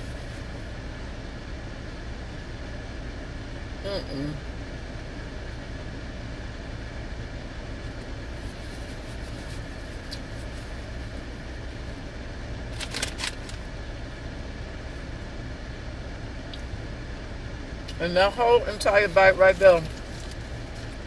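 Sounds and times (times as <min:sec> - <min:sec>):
car idling cabin hum: 0:00.0 - 0:21.0
plastic bag crinkling: 0:12.8 - 0:13.6.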